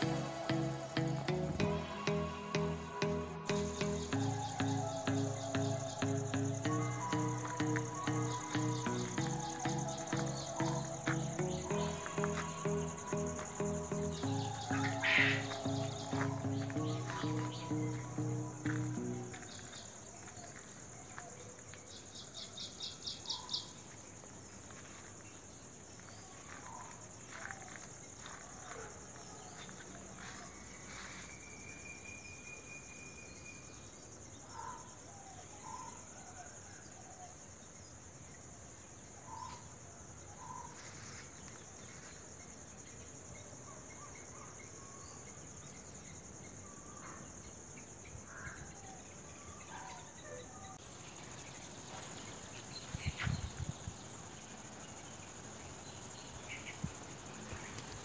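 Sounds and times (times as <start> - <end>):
birds chirping: 0.0 - 23.8
insects droning: 0.0 - 58.0.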